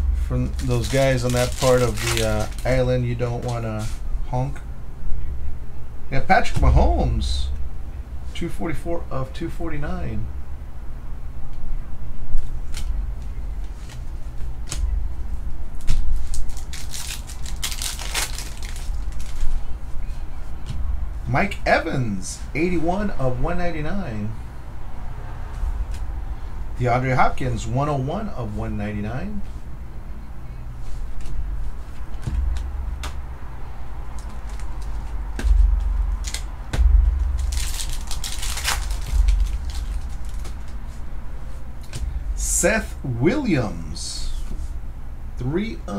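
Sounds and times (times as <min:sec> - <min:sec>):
low hum: 0:00.0 - 0:45.9
dull bumps: 0:06.4 - 0:07.7, 0:20.5 - 0:21.6, 0:31.2 - 0:43.3
cards clicking and tapping: 0:34.1 - 0:40.9.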